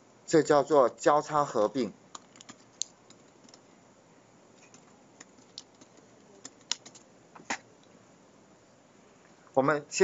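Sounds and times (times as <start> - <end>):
keyboard key clicks: 4.7 - 7.0.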